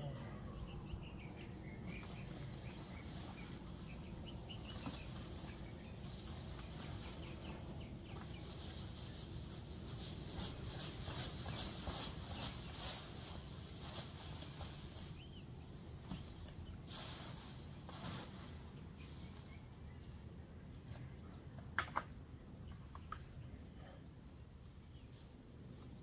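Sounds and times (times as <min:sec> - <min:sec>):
bird chirping: 0:00.0 - 0:16.8
dry leaves rustling and crackling: 0:00.3 - 0:19.6.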